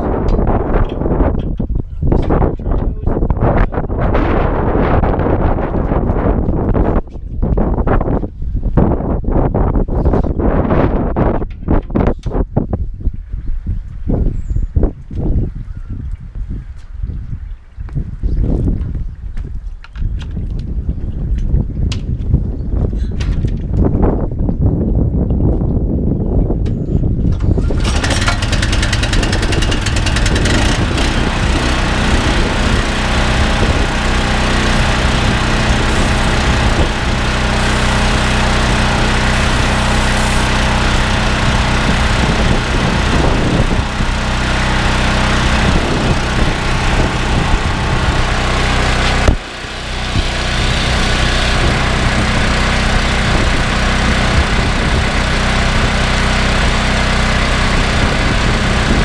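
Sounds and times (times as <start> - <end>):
petrol engine running: 27.4 - 59.0
high-pressure lance spraying: 27.9 - 54.4.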